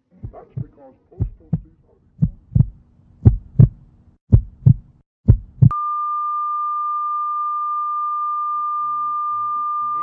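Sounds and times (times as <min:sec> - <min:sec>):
heartbeat thumps: 0:00.0 - 0:05.7.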